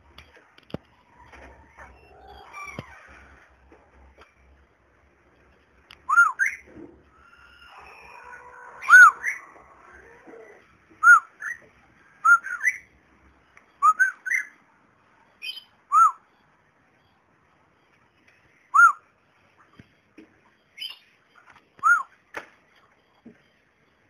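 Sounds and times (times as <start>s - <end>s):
cockatiel whistling: 6.1s - 9.8s, 13.8s - 14.6s, 15.4s - 16.2s, 18.7s - 19.0s, 21.8s - 22.1s.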